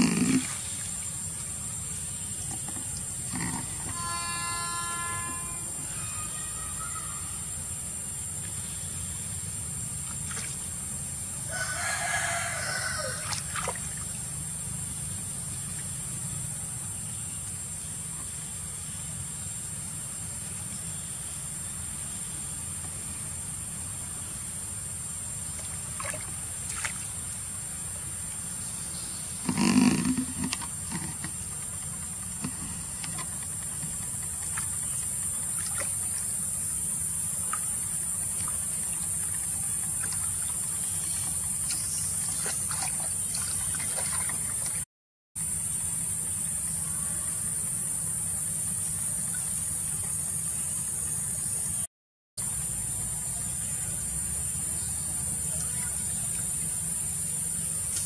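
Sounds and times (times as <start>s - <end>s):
animal call dropping in pitch: 3.3s - 7.3s, 29.4s - 31.3s
faint water splashes: 10.0s - 10.8s, 11.8s - 14.3s, 25.5s - 27.3s, 30.2s - 44.8s.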